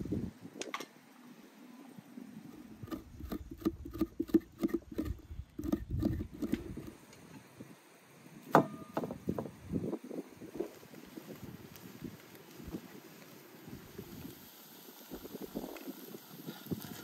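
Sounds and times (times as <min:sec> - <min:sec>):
spoon scraping pumpkin flesh: 0:02.8 - 0:07.0.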